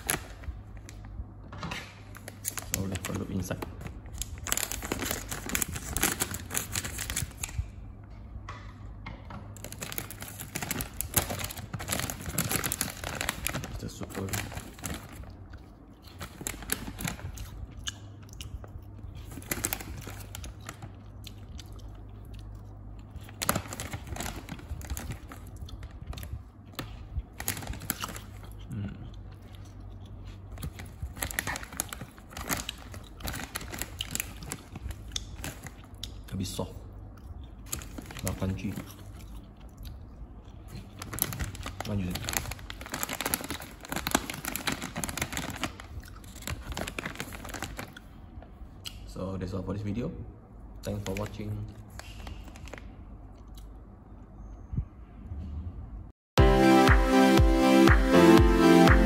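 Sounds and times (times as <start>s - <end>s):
snack bag crinkling: 2.1s - 7.8s, 9.6s - 36.2s, 37.4s - 39.9s, 40.6s - 48.1s.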